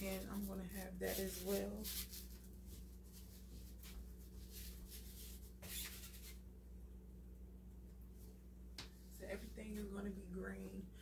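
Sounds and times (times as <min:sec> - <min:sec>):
soft scraping and rustling: 0:00.0 - 0:06.4
low electrical hum: 0:00.0 - 0:11.0.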